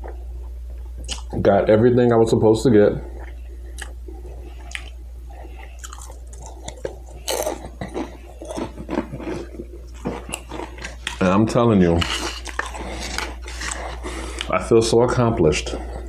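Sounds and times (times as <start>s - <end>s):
steady low hum: 0.0s - 16.0s
person crunching tortilla chips: 5.6s - 14.5s.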